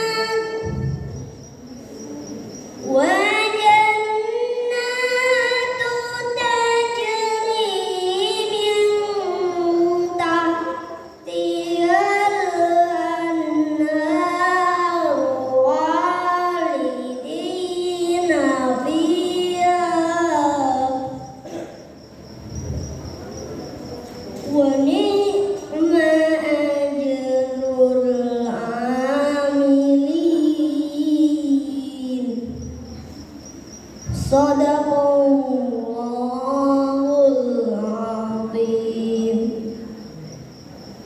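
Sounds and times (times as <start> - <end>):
boy reciting melodically: 0.0 - 41.0.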